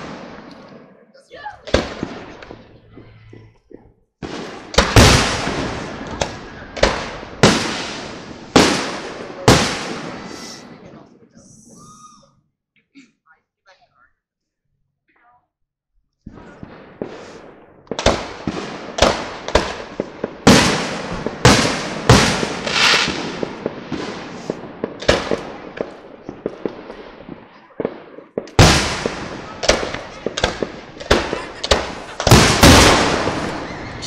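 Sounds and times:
fireworks bursting with echo: 0.0s - 12.2s, 16.2s - 34.0s.

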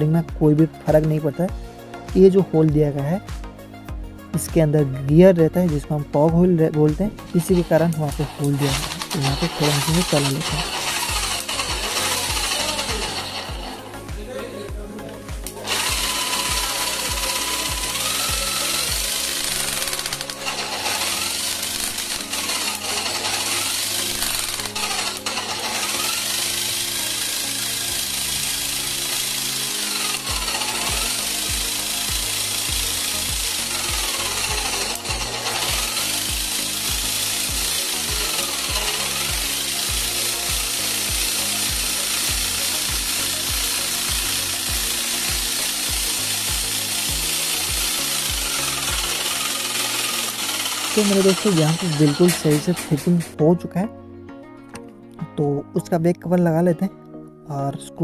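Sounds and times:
background music with beat: 0.0s - 55.8s
breaker motor running: 6.3s - 53.4s
demolition hammer rattling drone: 7.1s - 14.2s, 15.2s - 53.4s.

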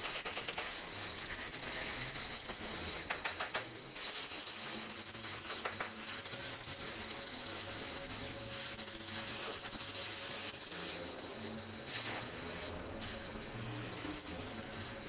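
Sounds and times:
welding torch flame hissing: 0.0s - 15.0s.

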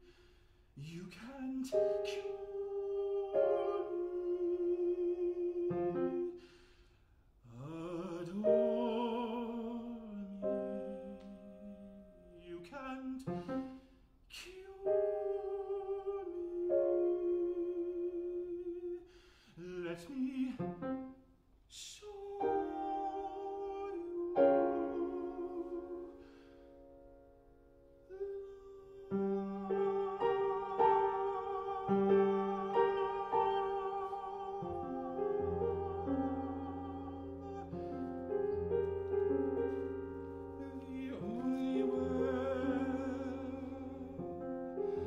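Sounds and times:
grand piano accompaniment: 0.8s - 6.5s, 7.7s - 13.8s, 14.4s - 18.9s, 19.8s - 21.2s, 22.0s - 45.0s
man singing with vibrato: 0.8s - 6.5s, 7.4s - 21.1s, 21.7s - 26.6s, 28.0s - 45.0s.

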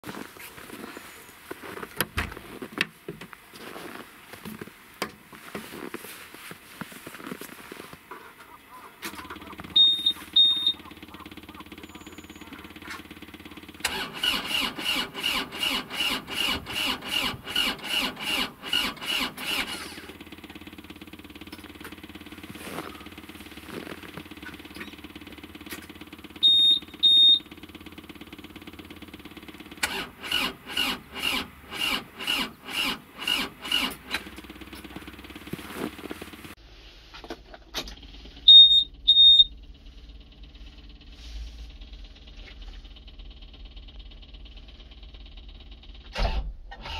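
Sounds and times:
diesel engine cranking by starter: 0.1s - 2.7s, 9.0s - 36.6s, 37.2s - 46.9s
warning buzzer double beeps: 9.7s - 10.9s, 26.4s - 27.4s.

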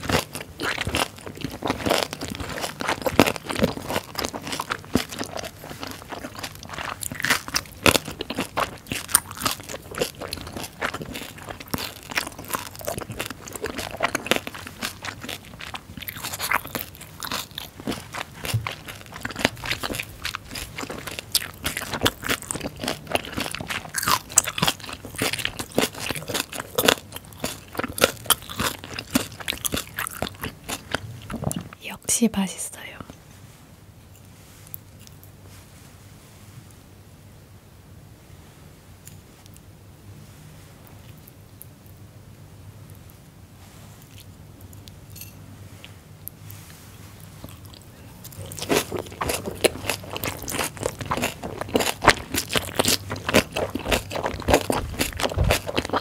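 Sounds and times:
crunchy chewing: 0.0s - 31.8s, 44.0s - 56.0s.

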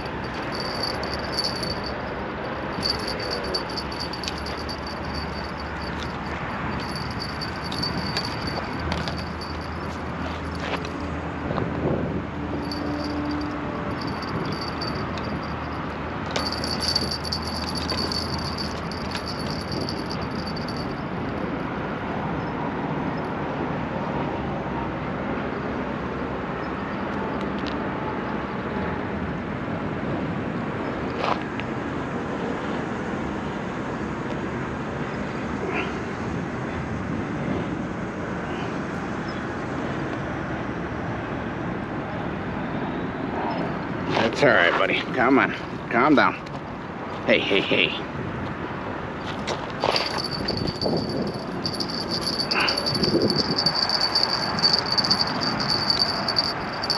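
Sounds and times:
city traffic noise: 0.0s - 56.9s
high-pitched ticking sound: 50.2s - 56.9s.

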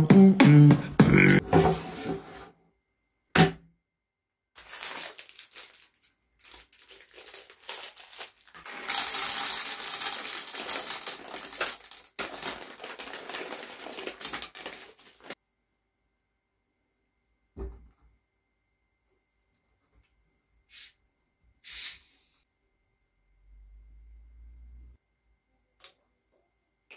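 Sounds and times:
paper bag rustling: 4.6s - 15.4s
popcorn kernels rattling into a pan: 4.6s - 15.4s.

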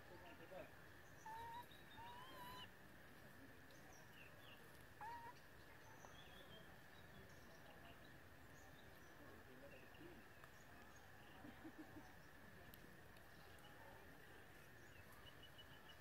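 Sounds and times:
steady outdoor hiss: 0.0s - 16.0s
faint bird chirps: 0.9s - 2.7s, 3.7s - 12.4s.

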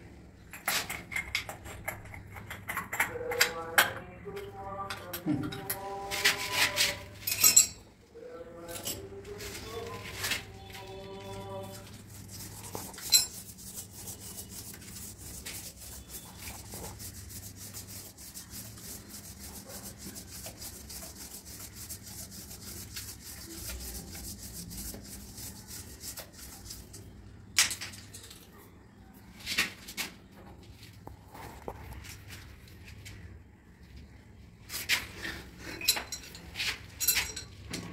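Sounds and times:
fine rubbing and scratching: 9.3s - 26.9s.

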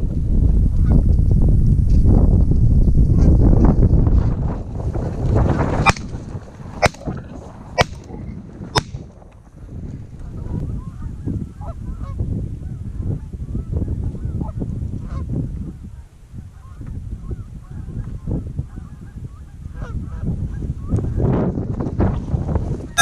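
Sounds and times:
shotgun blasts: 5.8s - 6.2s, 6.8s - 7.1s, 7.8s - 8.1s, 8.8s - 9.0s.

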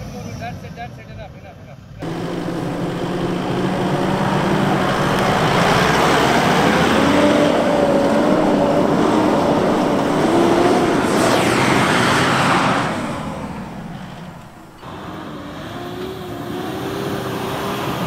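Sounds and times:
tyres throwing sand: 2.0s - 14.9s
engine revving high: 2.0s - 18.0s.

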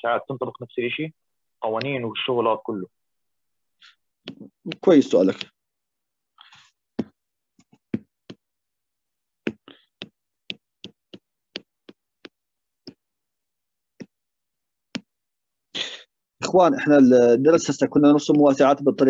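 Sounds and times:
stylus tapping on pen tablet: 1.7s - 2.0s, 4.1s - 5.7s, 6.5s - 8.6s, 9.3s - 13.2s, 13.8s - 15.3s.

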